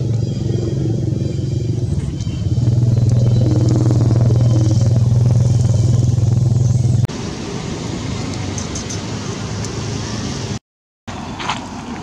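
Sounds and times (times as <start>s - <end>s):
motor engine running: 0.0s - 7.1s
rushing outdoor background: 0.0s - 12.0s.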